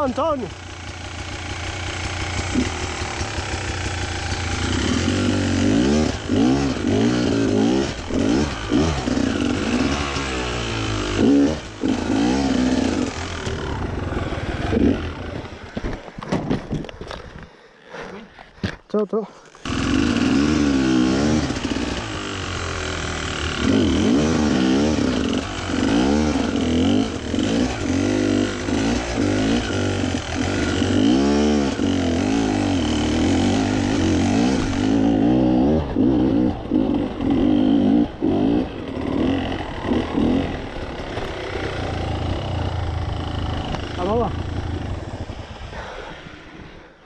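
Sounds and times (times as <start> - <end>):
motorcycle engine revving: 0.0 - 15.9, 19.6 - 46.6.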